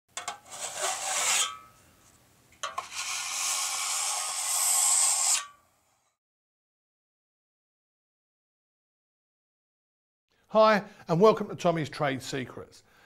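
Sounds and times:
harsh high scraping noise: 0.3 - 1.8, 2.7 - 5.6.

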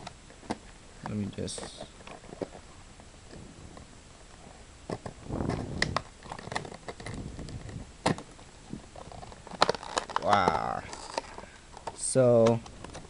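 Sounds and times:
plastic packaging crinkling: 5.0 - 13.0
sharp plastic clicks: 9.5 - 13.0.

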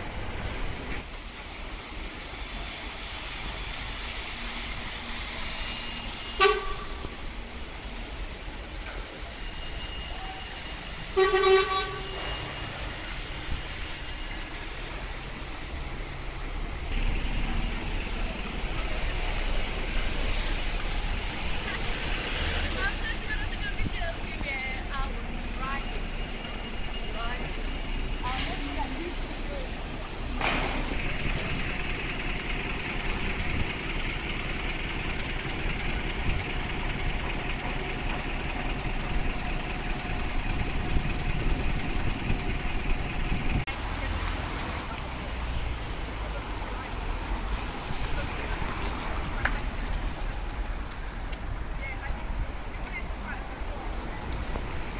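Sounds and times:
bus engine rumble: 0.0 - 54.9
road noise: 0.0 - 54.9
street traffic noise: 0.0 - 54.9
vehicle engine idling: 27.6 - 43.7.

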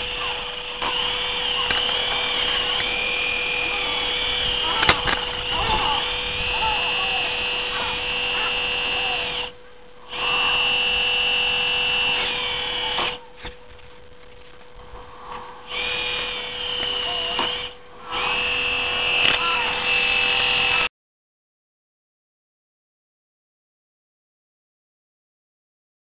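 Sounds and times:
toy truck electric motor whining: 0.0 - 13.5, 15.7 - 20.9.

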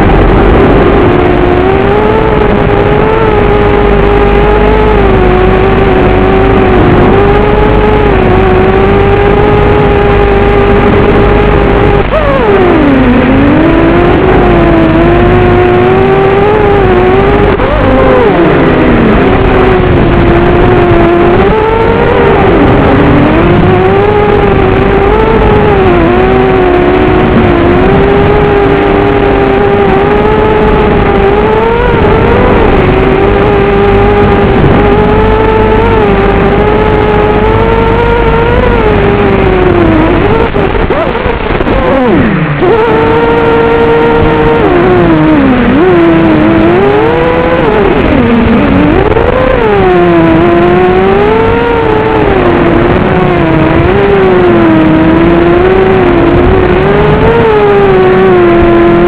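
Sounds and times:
quadcopter motors whining: 0.0 - 59.0.

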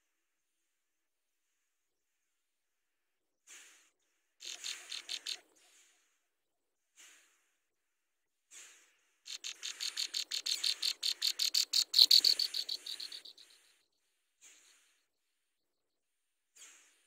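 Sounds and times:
nestling songbirds chirping: 4.4 - 5.6, 9.3 - 15.0.

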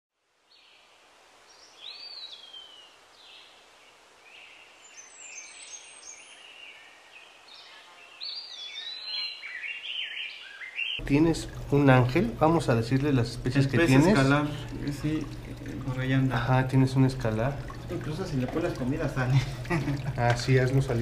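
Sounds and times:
birds chirping and whistling: 4.3 - 11.0.

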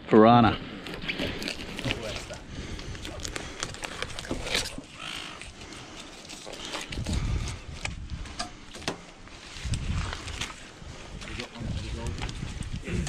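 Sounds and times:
knife cutting and scraping fish: 0.8 - 8.8.

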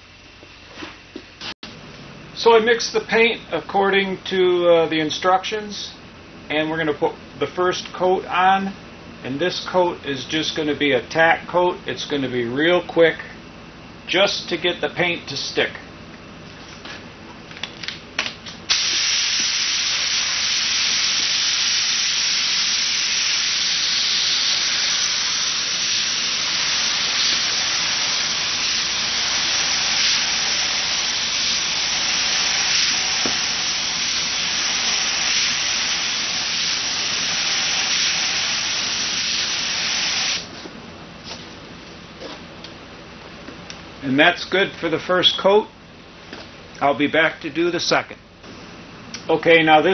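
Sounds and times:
paint spray gun hissing: 18.7 - 40.5.

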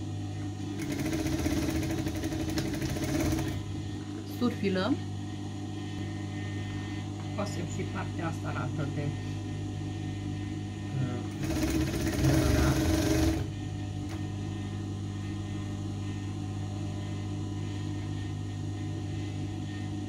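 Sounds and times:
overlock machine running: 0.6 - 3.9, 11.3 - 14.2.

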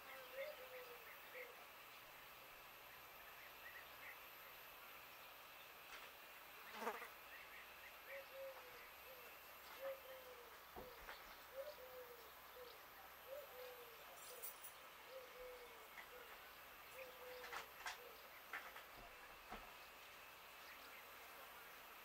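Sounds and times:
dove cooing: 0.0 - 1.8, 8.0 - 19.1
fly buzzing: 5.9 - 7.9.

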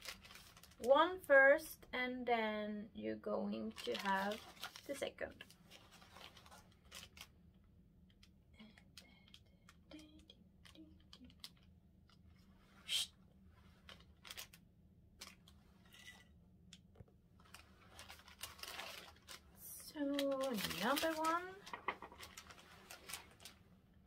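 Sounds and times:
plastic crinkle: 0.0 - 0.9, 3.6 - 12.5, 13.6 - 14.6, 17.4 - 23.7
plastic packet rustling: 0.0 - 0.9, 3.6 - 7.3, 13.6 - 14.6, 17.4 - 23.6.

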